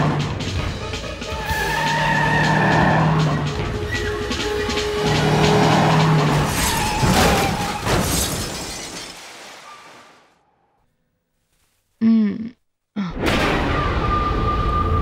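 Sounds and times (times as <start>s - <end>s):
dramatic film music: 0.0s - 7.6s
tyres skidding: 0.0s - 9.9s.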